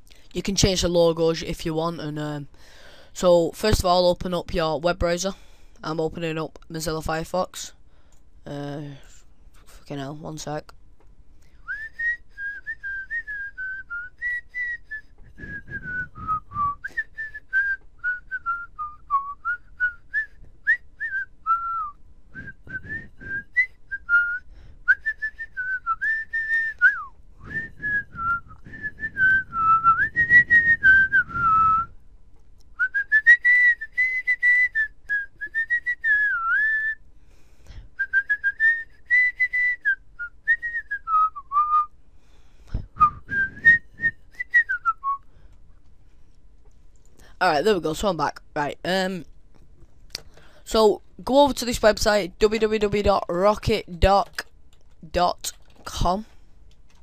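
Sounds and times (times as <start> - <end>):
soft low noise: 0.0 - 33.1
person whistling a tune: 11.5 - 31.9, 32.8 - 37.0, 38.0 - 41.9, 42.7 - 45.3.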